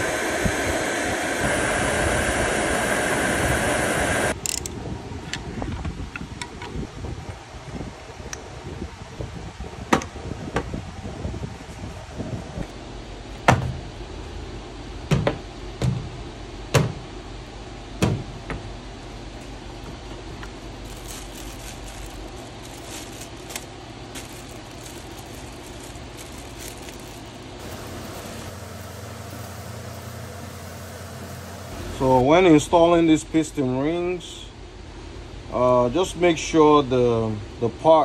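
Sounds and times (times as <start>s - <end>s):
steady low hum: 12.5s - 37.8s.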